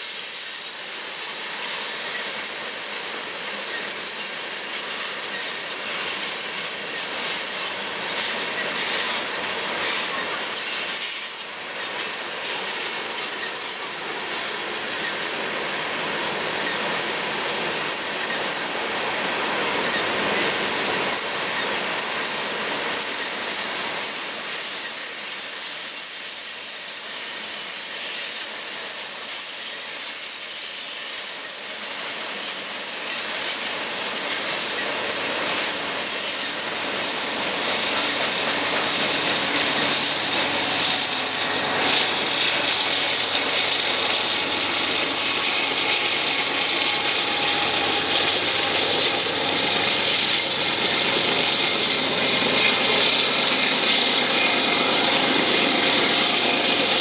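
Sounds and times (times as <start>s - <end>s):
diesel locomotive drone: 0.0s - 57.0s
train wheels on rails: 0.0s - 57.0s.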